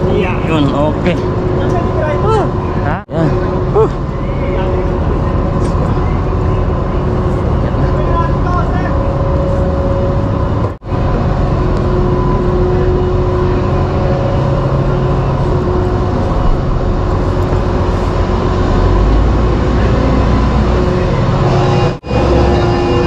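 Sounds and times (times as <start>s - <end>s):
ship machinery drone: 0.0s - 23.0s.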